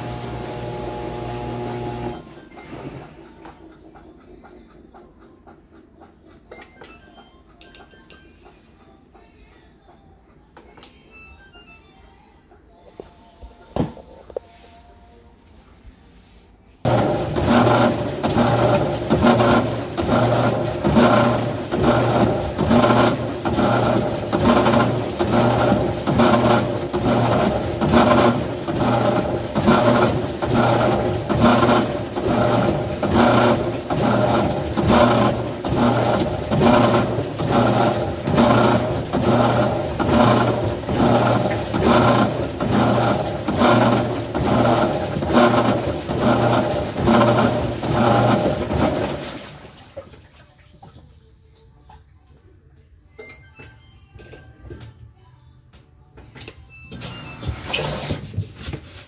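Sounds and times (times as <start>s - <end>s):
washing machine motor pulsing: 0.0s - 5.2s, 16.8s - 50.0s.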